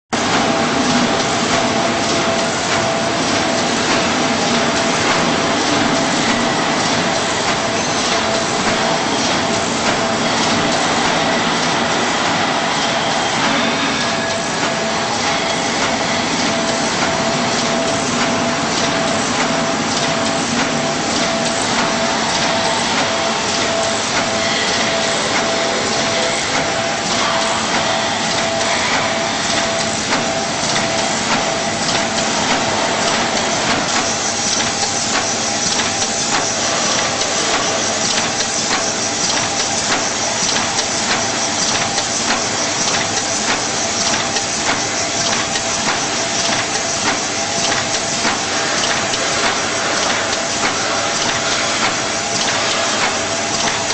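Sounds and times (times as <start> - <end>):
screen printer clattering: 0.2 - 53.9.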